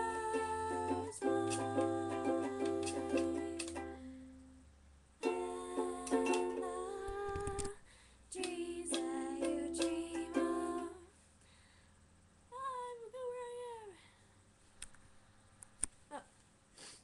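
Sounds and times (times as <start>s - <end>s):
ukulele strumming: 0.0s - 4.1s, 5.2s - 7.7s, 8.4s - 11.0s.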